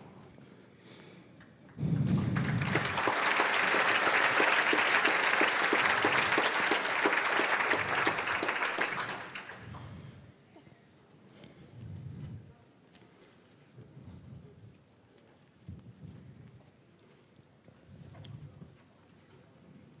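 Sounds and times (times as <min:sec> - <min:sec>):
audience applauding: 0:01.7 - 0:09.9.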